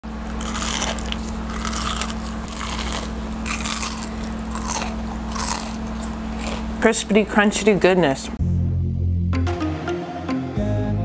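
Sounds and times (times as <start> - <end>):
steady low hum: 0.0 - 9.3
crunchy chewing: 0.1 - 6.8.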